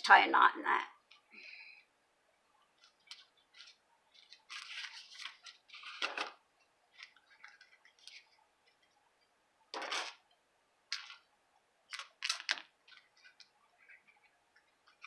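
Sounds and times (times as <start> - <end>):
cardstock rustling: 2.8 - 8.3.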